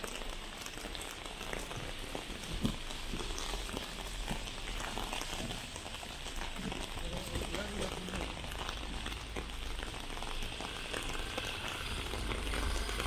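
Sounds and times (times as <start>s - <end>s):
heavy rain falling: 0.0s - 13.0s
raindrops ticking on surfaces: 0.0s - 13.0s.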